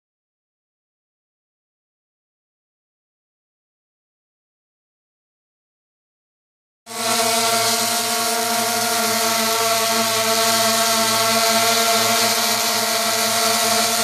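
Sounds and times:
drone buzzing hum: 6.9s - 14.0s.

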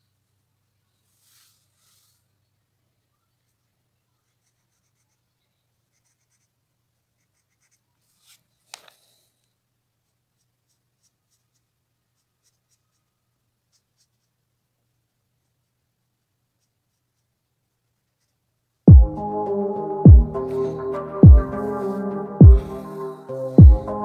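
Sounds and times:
marker scratching on paper: 4.2s - 9.2s, 10.0s - 14.5s, 16.5s - 18.5s.

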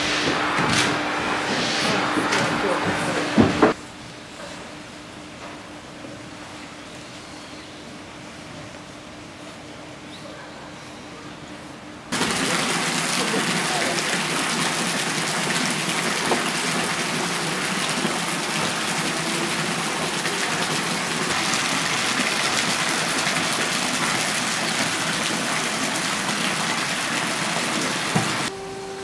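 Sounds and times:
water splashing into stone pool: 12.1s - 28.5s.

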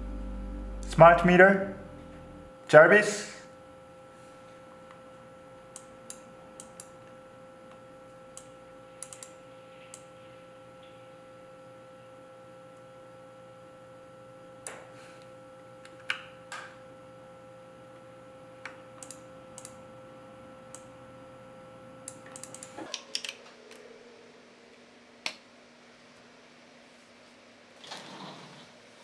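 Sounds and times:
steady electrical hum: 0.0s - 29.0s
computer keyboard clicks: 9.0s - 9.4s, 22.1s - 23.4s.

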